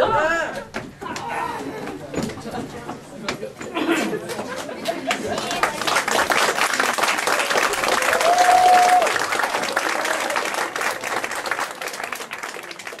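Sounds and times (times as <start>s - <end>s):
audience clapping: 4.3s - 13.0s
person cheering: 8.0s - 9.2s.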